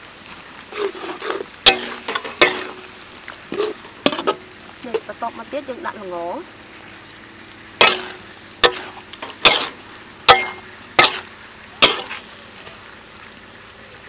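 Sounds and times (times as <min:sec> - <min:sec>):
faint sizzle: 0:00.0 - 0:14.0
metal spatula scraping a wok: 0:00.7 - 0:02.9, 0:03.5 - 0:04.5, 0:07.8 - 0:12.3.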